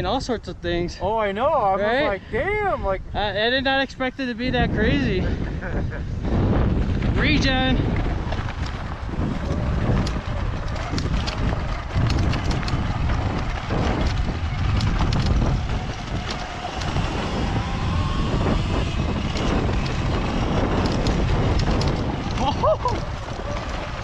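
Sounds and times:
wind buffeting microphone: 0.0s - 24.0s
stones and bike rattling: 6.1s - 24.0s
tyres crunching over rocky dirt: 6.5s - 24.0s.

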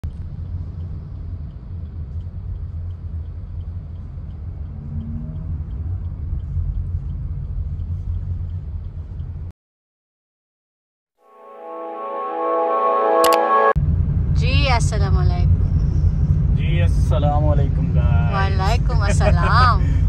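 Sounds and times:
car engine and road noise: 0.0s - 9.5s, 13.5s - 20.0s.

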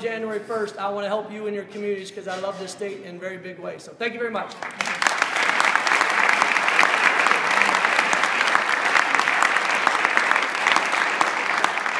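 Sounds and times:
audience applauding: 4.6s - 11.9s.

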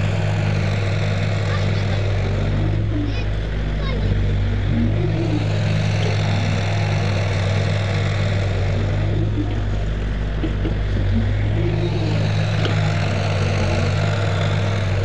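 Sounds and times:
excavator diesel engine droning: 0.0s - 15.0s.

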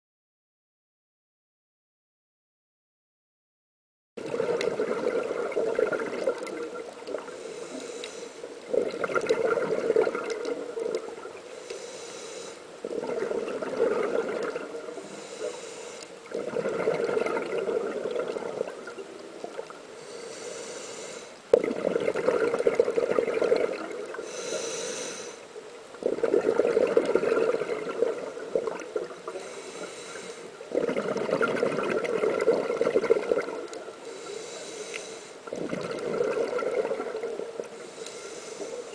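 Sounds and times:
exhaust bubbling underwater: 4.2s - 7.4s, 8.6s - 11.4s, 12.8s - 14.9s, 16.3s - 19.7s, 21.5s - 24.2s, 26.0s - 29.4s, 30.6s - 33.8s, 35.5s - 37.8s
regulator inhale hiss: 7.1s - 8.6s, 11.4s - 12.8s, 14.8s - 16.3s, 19.9s - 21.5s, 24.1s - 25.6s, 29.3s - 30.7s, 33.9s - 35.6s, 37.6s - 38.9s.

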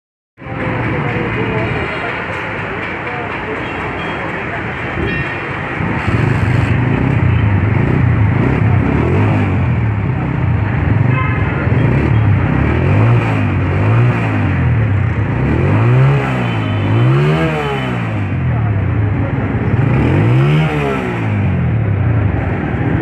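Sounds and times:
motorcycle engine revving: 5.6s - 23.0s.

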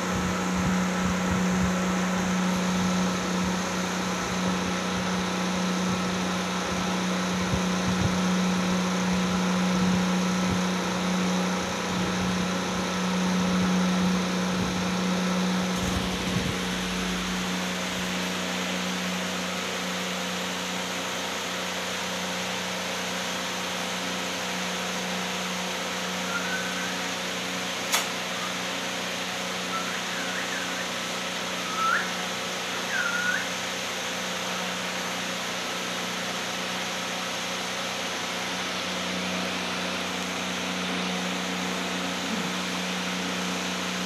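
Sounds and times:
mechanical hum and hiss: 0.0s - 44.0s
parrots chirping: 26.2s - 27.2s, 29.6s - 33.5s
sharp click: 27.9s - 28.2s.

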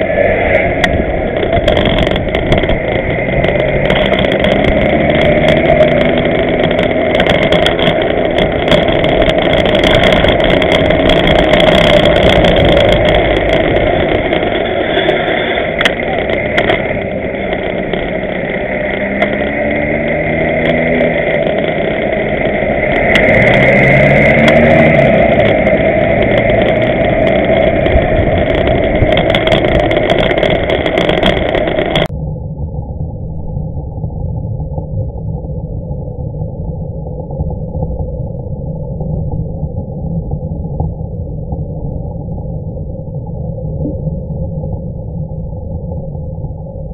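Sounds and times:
bus diesel engine: 0.0s - 32.1s
wind and road noise: 0.0s - 46.9s.

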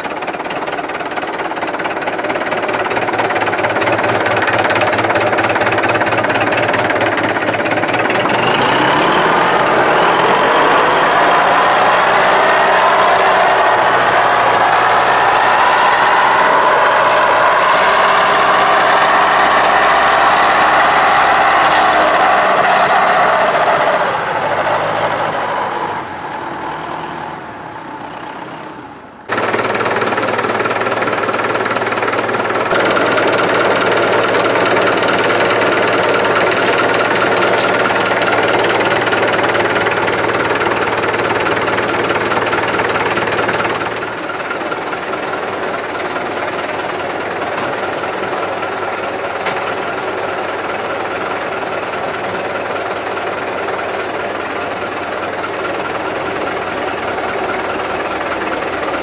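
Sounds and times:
tractor diesel engine clattering: 0.0s - 59.0s.

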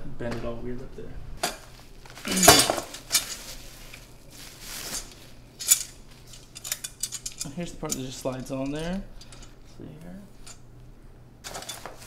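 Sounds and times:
metal brackets clinking: 2.3s - 3.4s, 5.0s - 10.7s.

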